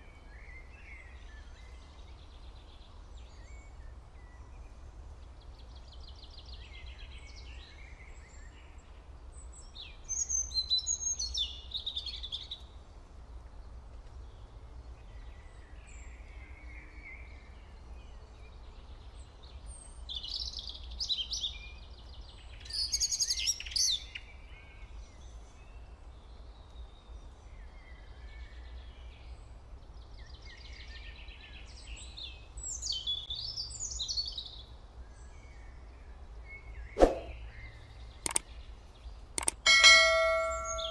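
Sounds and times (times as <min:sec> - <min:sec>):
birds chirping: 0:37.0 - 0:40.9.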